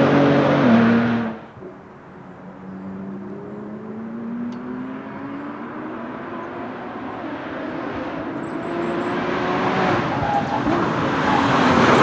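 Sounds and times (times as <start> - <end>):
car engine accelerating: 2.5 - 12.0.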